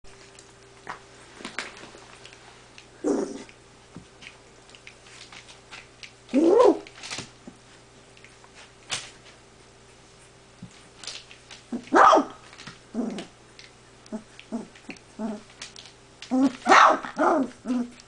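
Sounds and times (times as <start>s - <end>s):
puppy barking: 11.8s - 12.4s, 16.6s - 17.5s.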